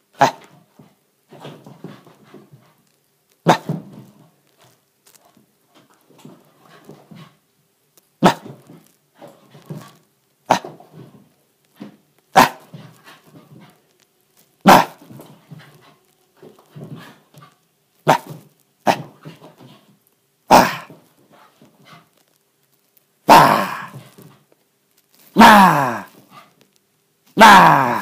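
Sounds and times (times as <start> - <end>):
quiet low dog sounds: 0.1 - 24.6, 25.2 - 27.4
puppy barking: 12.4 - 12.7, 14.6 - 15.0, 18.0 - 18.3, 20.5 - 20.9.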